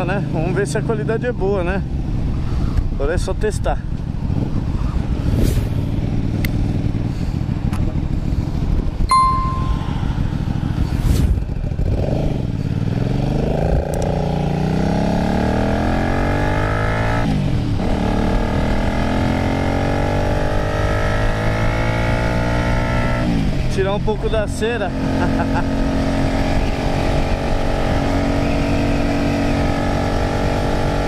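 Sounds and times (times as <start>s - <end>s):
wind rush on microphone: 2.2s - 9.2s
motorcycle engine revving: 10.3s - 23.7s, 24.8s - 31.0s.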